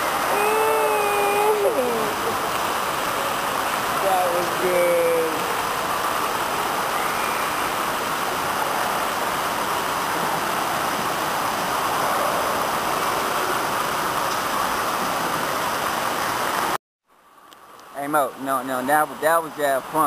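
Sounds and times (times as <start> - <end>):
water jets splashing on floor: 0.0 - 16.8.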